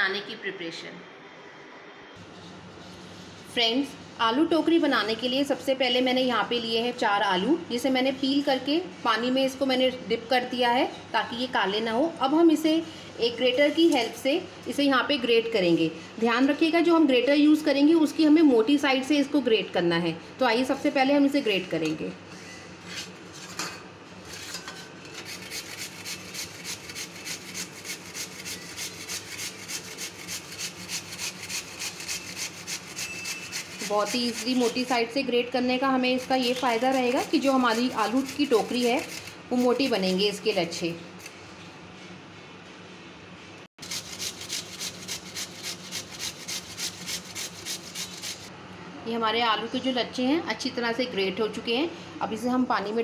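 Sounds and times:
potato grating on grater: 0:25.2 - 0:35.2, 0:36.0 - 0:40.9, 0:43.8 - 0:48.5.

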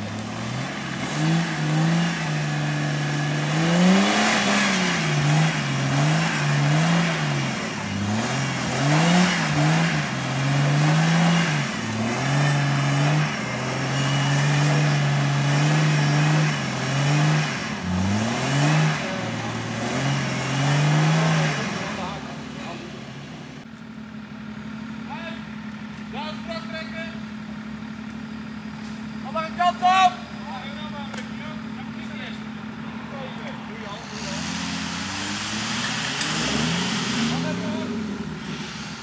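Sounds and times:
engine revving up and down: 0:00.0 - 0:23.6, 0:32.8 - 0:39.0.

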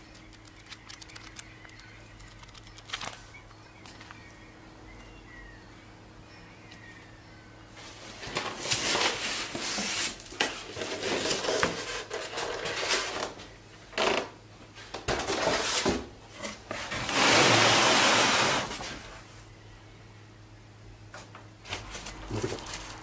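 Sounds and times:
cardboard and paper rustling: 0:02.8 - 0:03.3, 0:07.8 - 0:13.4, 0:21.6 - 0:23.0
cardboard scraping: 0:15.3 - 0:19.1.

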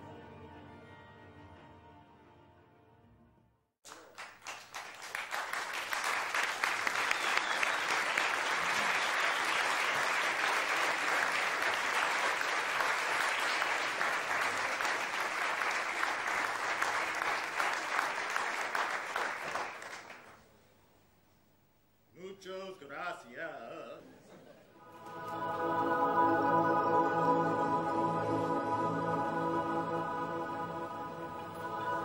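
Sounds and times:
audience applauding: 0:03.8 - 0:20.4.

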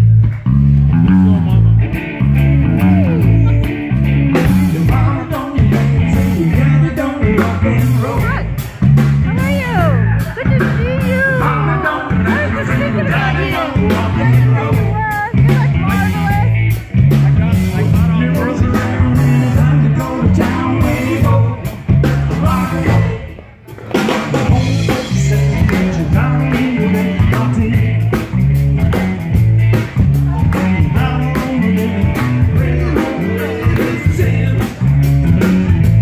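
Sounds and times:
blues-rock band playing: 0:00.0 - 0:36.0
repeating bass riff: 0:00.0 - 0:36.0.

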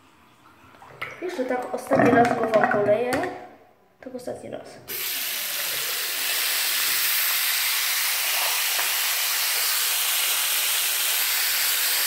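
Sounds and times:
running water splashing: 0:04.9 - 0:12.0.

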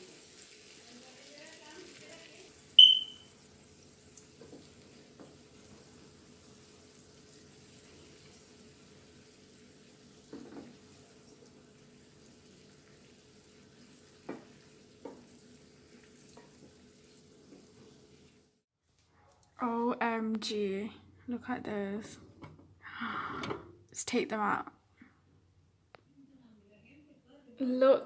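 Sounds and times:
syrup bubbling in a pan: 0:00.0 - 0:18.6
high-pitched ping: 0:02.8 - 0:03.3
wooden spatula knocking on pan: 0:14.2 - 0:15.3.

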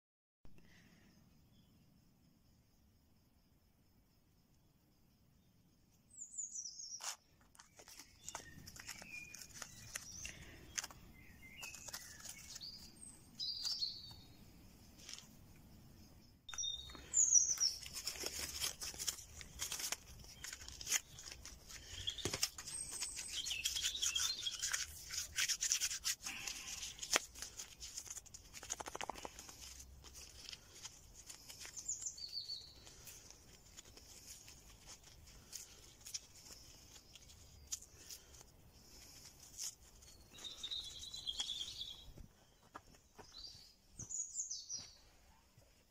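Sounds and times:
hands rubbing and rustling material: 0:07.0 - 0:13.8, 0:17.5 - 0:43.4
birds chirping and singing: 0:40.0 - 0:45.1.

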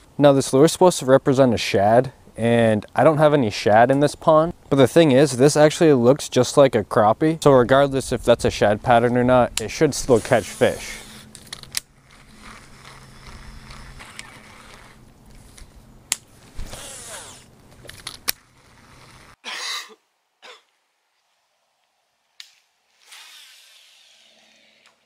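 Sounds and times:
low steady hum: 0:00.0 - 0:19.4
fishing reel cranking: 0:10.5 - 0:15.0, 0:16.6 - 0:19.4.

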